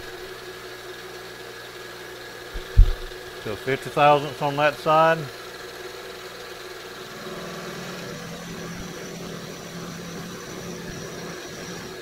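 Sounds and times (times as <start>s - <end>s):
milling machine cutting: 6.7s - 12.0s.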